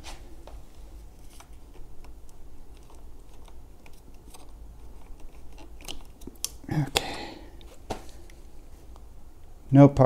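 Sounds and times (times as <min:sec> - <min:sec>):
hands clicking on plastic parts: 0:01.4 - 0:08.0.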